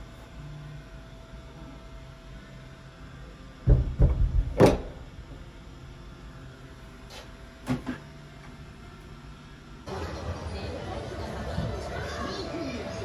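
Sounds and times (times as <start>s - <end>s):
thumping on cubicle door: 3.6s - 4.9s.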